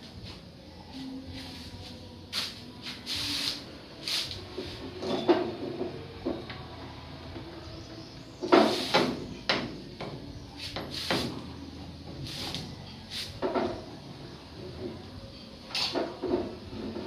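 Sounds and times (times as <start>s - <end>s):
tools knocking and scraping metal: 5.0s - 6.6s.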